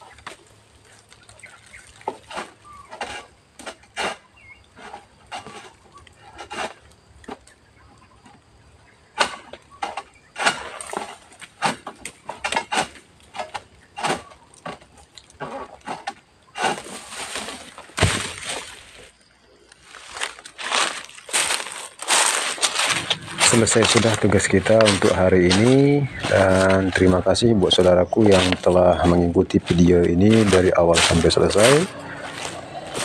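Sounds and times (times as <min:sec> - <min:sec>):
sharp cracks and knocks: 0:09.1 - 0:19.0
rustling crash with low thud: 0:16.8 - 0:19.1.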